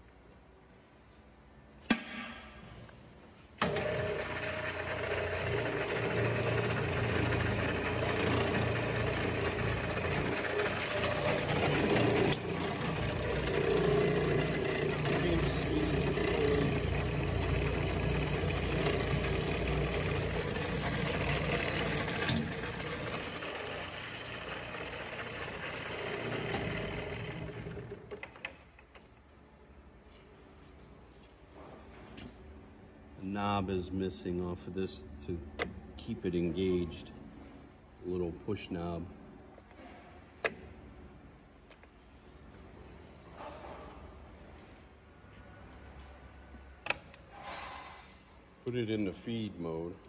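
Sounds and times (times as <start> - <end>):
metal lathe motor running: 3.6 - 28.0.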